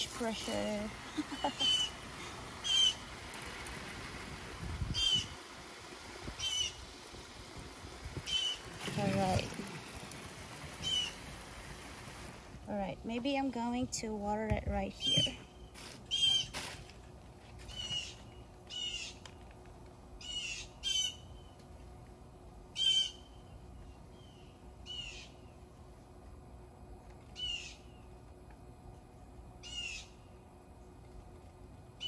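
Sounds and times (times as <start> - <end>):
bird calling: 1.1 - 3.1, 4.9 - 5.4, 6.3 - 6.9, 8.2 - 10.0, 10.8 - 11.3, 16.1 - 16.6, 17.7 - 19.2, 20.2 - 21.5, 22.8 - 25.5, 27.4 - 28.0, 29.6 - 30.3.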